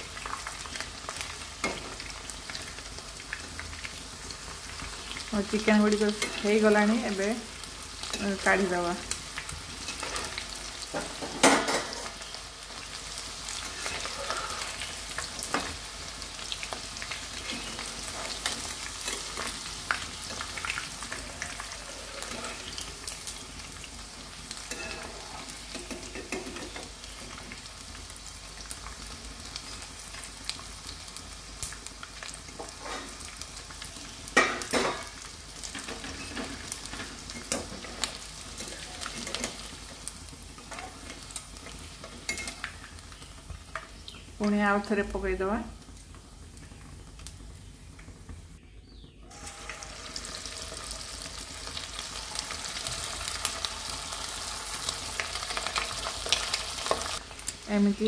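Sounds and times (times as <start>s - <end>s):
food sizzling in hot oil: 0.0s - 58.0s
utensils scraping and clinking on pan: 6.0s - 6.9s, 8.0s - 8.8s, 9.8s - 12.2s, 13.5s - 15.8s, 17.3s - 23.2s, 24.6s - 27.0s, 32.6s - 33.3s, 34.4s - 42.9s.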